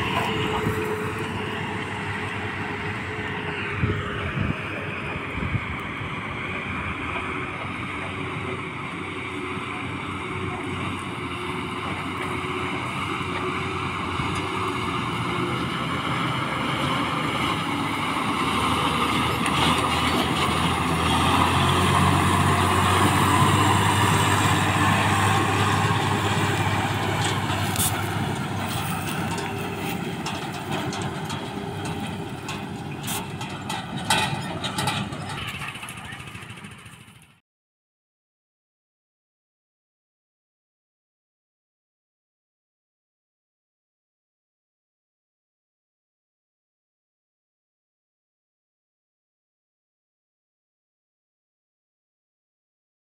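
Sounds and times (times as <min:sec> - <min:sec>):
diesel truck engine passing: 0:00.0 - 0:37.4.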